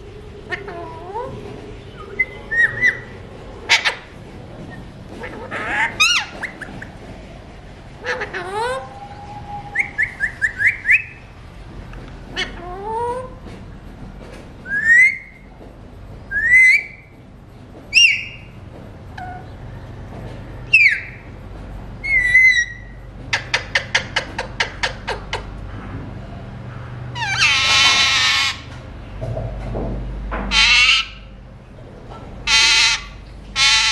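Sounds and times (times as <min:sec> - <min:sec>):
parakeet whistles and chirps: 0:01.9 - 0:03.1, 0:08.6 - 0:11.2, 0:14.7 - 0:15.3, 0:16.3 - 0:17.0, 0:22.0 - 0:22.9
parakeet harsh squawk: 0:27.2 - 0:28.7, 0:30.5 - 0:31.3, 0:32.5 - 0:33.9.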